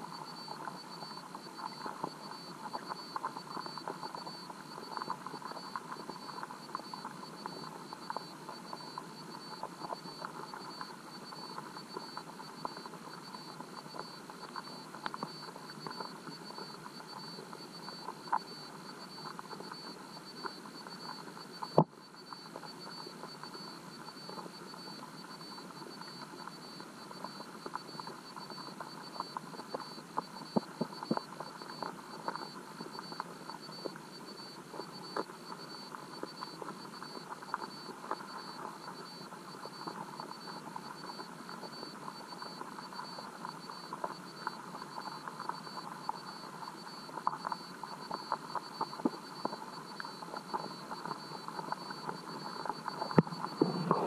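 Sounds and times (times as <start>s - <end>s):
faint high whine: 51.4s - 54.0s
muffled underwater river rushing: 52.1s - 54.0s.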